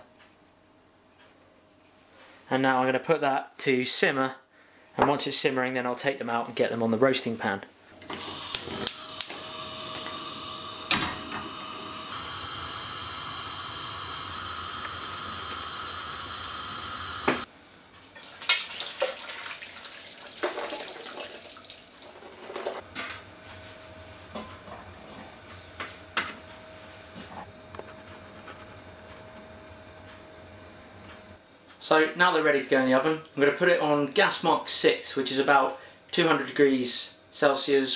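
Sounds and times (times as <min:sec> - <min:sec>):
gas burner hissing: 0:08.0 - 0:17.5
gas burner igniter clicking: 0:08.2 - 0:17.5
water splashing into colander: 0:18.2 - 0:22.8.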